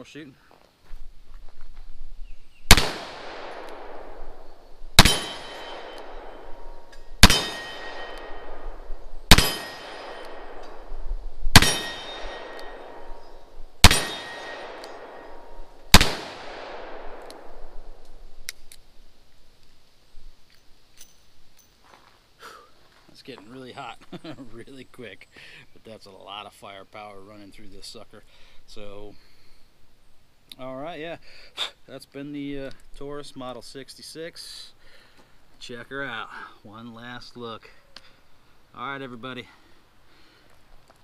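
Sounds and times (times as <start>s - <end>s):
revolver shots with echo: 2.7s - 4.2s, 5.0s - 10.9s, 11.6s - 17.5s.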